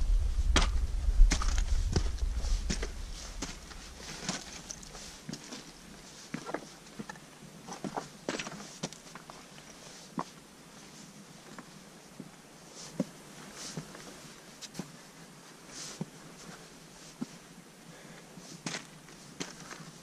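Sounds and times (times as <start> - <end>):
wind rumble on microphone: 0.0 - 6.0
footsteps on loose rock: 0.5 - 7.1.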